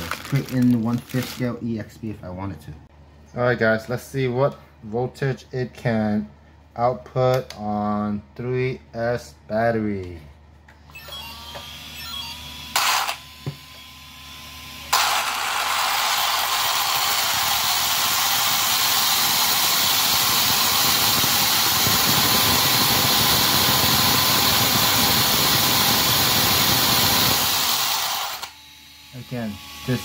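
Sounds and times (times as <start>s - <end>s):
electric motor and gears whirring: 10.8s - 30.0s.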